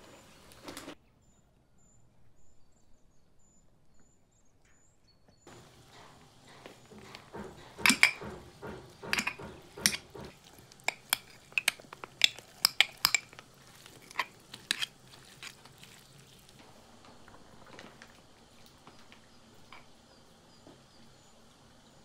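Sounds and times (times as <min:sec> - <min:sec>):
cutlery clinking against dishes: 0:05.5 - 0:15.8.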